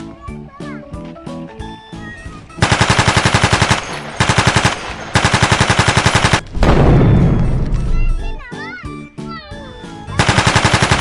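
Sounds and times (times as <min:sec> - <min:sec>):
machine-gun fire: 0:02.6 - 0:08.0, 0:10.2 - 0:11.0
deep explosion boom: 0:06.4 - 0:08.4.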